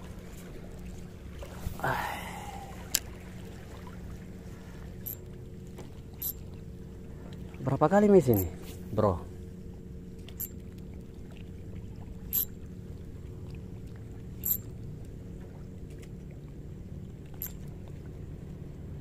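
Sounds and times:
boat engine humming: 0.0 - 19.0.

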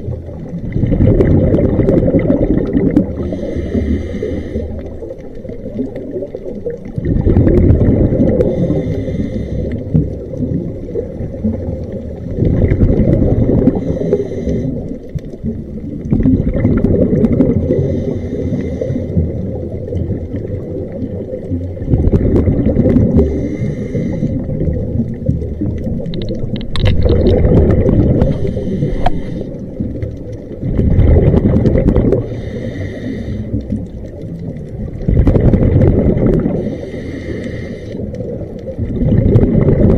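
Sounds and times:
exhaled bubbles gurgling underwater: 0.0 - 39.9
hissing inhalations through regulator: 3.0 - 5.4, 8.1 - 10.2, 13.0 - 15.4, 17.4 - 19.8, 23.0 - 25.1, 27.8 - 30.2, 31.9 - 34.0, 36.3 - 38.5.

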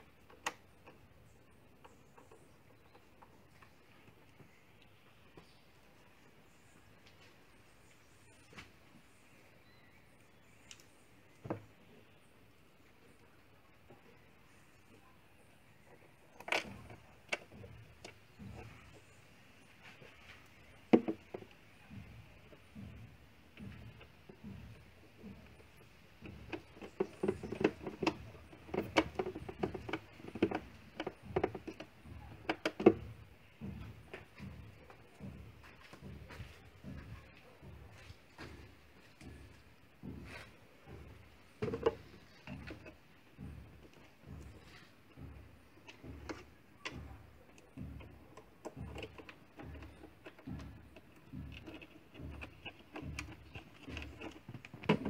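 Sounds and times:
tool clicking and knocking: 20.9 - 55.0.

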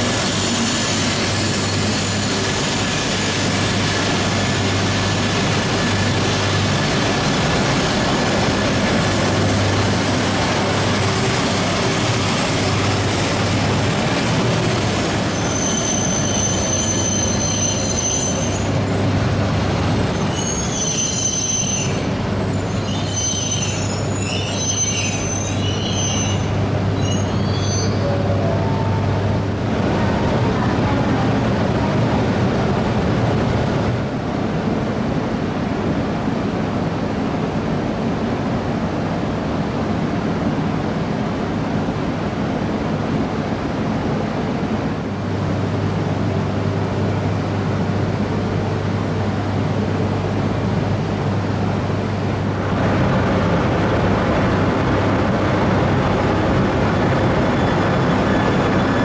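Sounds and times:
train wheels squealing: 0.0 - 9.1, 14.8 - 19.0, 20.1 - 28.4, 56.5 - 59.0
low train hum: 0.0 - 59.0.

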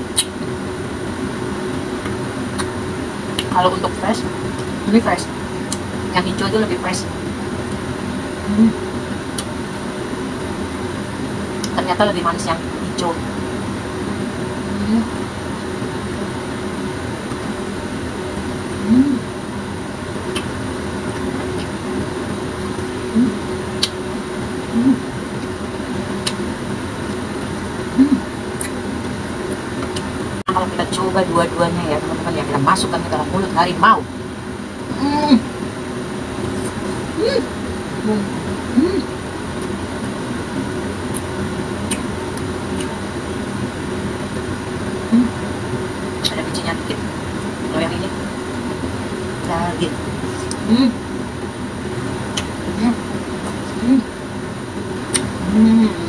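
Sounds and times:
electric fan whirring: 0.0 - 56.0
mouth clicks while eating: 0.1 - 0.4, 20.3 - 20.5, 23.8 - 24.0, 41.9 - 43.0, 52.3 - 52.6, 55.1 - 55.4
person humming: 8.4 - 8.8, 14.6 - 15.2, 18.8 - 19.3, 23.1 - 23.5, 24.7 - 25.1, 28.0 - 28.3, 37.1 - 39.1, 45.1 - 45.4, 53.7 - 54.2, 55.4 - 56.0.

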